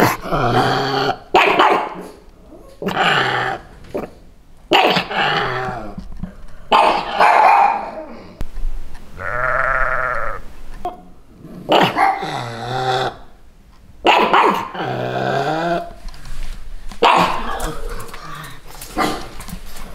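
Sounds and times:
dog barking: 0:01.4 - 0:02.2, 0:04.7 - 0:05.1, 0:06.7 - 0:08.0, 0:11.7 - 0:12.3, 0:14.0 - 0:14.7, 0:17.0 - 0:17.7
sheep bleating: 0:09.2 - 0:10.5.

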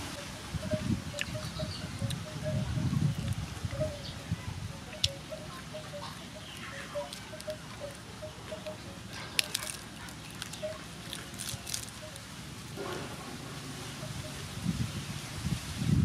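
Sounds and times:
lettuce leaves crinkling: 0:04.9 - 0:12.4.

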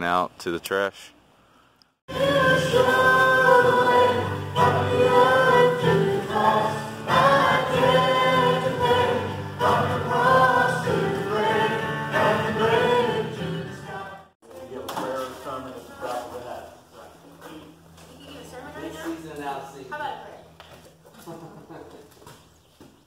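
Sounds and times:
people singing a worship song: 0:02.1 - 0:14.4.

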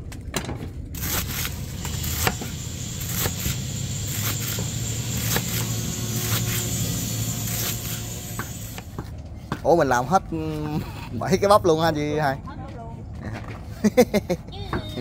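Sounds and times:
engine humming: 0:00.0 - 0:10.8.

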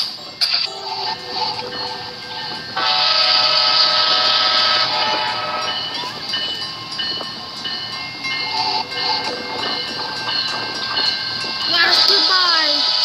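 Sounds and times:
train noise: 0:00.0 - 0:13.0
locomotive horn: 0:00.7 - 0:06.6.

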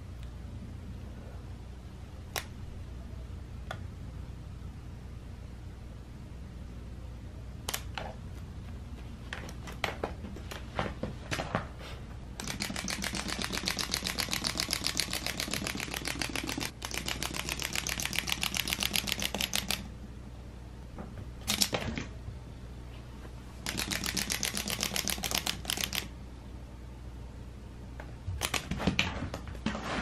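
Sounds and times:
toy mechanism clicking: 0:12.4 - 0:19.9, 0:23.6 - 0:26.1.

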